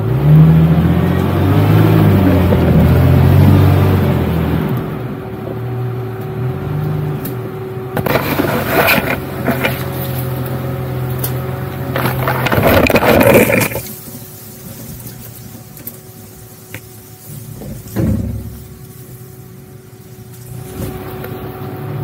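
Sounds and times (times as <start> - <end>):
car engine under load: 0.0 - 22.0
branches scraping car body: 8.0 - 21.4.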